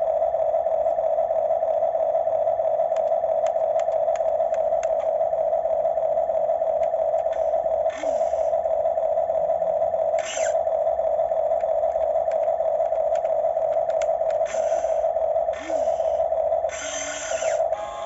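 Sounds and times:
electric drive droning: 0.0 - 18.0
short higher whirr: 7.2 - 8.6, 10.1 - 10.6, 14.3 - 18.0.

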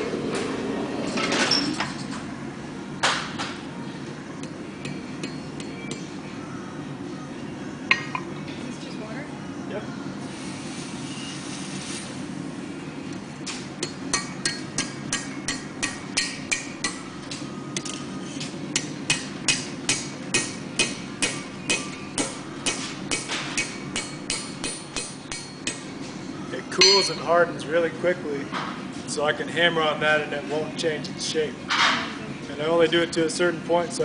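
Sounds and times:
steady low hum: 0.0 - 34.0
hammer ringing on anvil: 13.8 - 17.0, 26.8 - 27.2.

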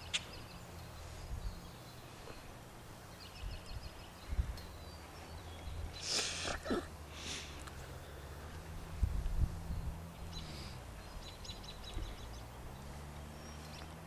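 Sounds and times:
short hiss: 6.0 - 7.6.

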